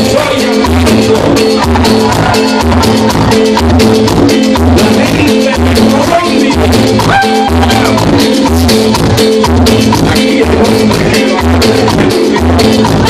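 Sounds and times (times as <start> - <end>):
man singing into microphone: 0.0 - 2.4, 4.6 - 8.2, 9.8 - 13.0
accordion: 0.0 - 13.0
congas: 0.0 - 13.0
live band playing: 0.0 - 13.0.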